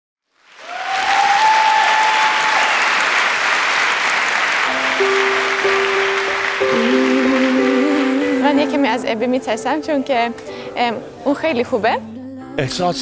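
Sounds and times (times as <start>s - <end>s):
audience applauding: 0.3s - 8.8s
instrumental music with held notes: 4.6s - 13.0s.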